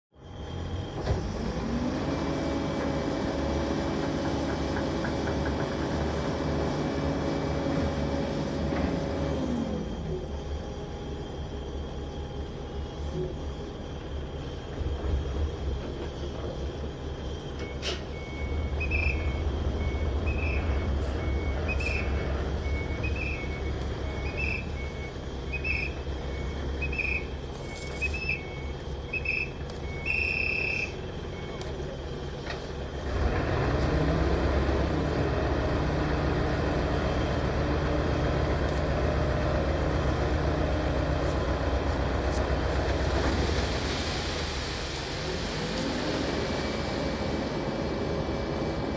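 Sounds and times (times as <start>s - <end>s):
diesel machinery rumbling: 0.2s - 48.9s
reversing alarm beeping: 17.2s - 32.7s.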